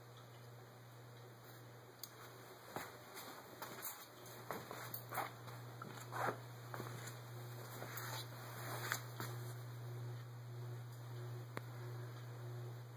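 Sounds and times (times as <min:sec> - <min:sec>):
low steady hum: 0:00.0 - 0:12.9
soft rustles: 0:02.2 - 0:09.5.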